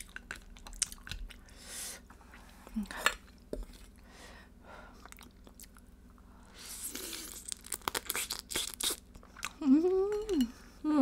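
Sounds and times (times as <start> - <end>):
biting and chewing crab: 6.9 - 9.6.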